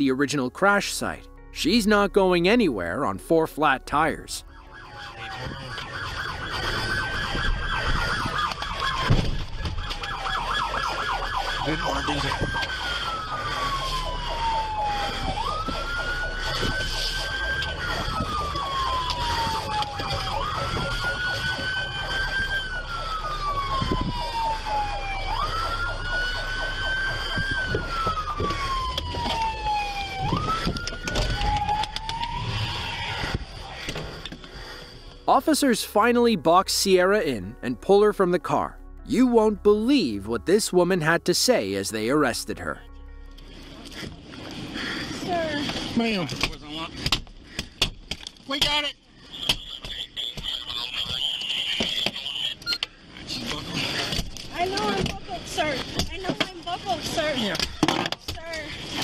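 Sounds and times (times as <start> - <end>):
police siren yelp: 3.9 - 36.1, 48.8 - 59.0
siren tone gliding downward: 4.4 - 34.3.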